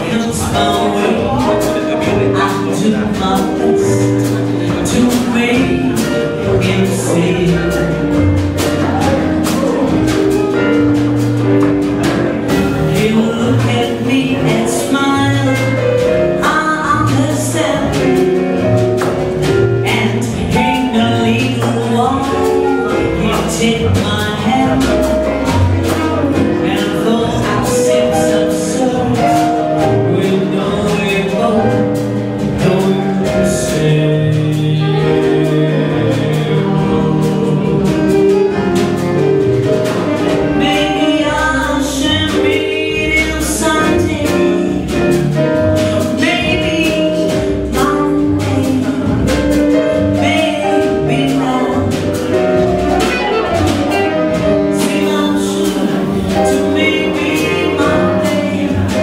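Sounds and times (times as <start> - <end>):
jazz band playing: 0.0 - 59.0
tenor saxophone melody: 50.2 - 59.0.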